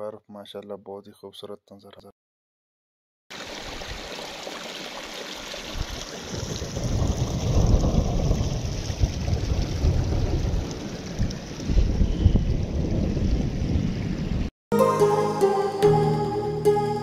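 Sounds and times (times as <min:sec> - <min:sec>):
stream trickling over stones: 0:03.3 - 0:11.8
wind rumbling on microphone: 0:05.7 - 0:14.5.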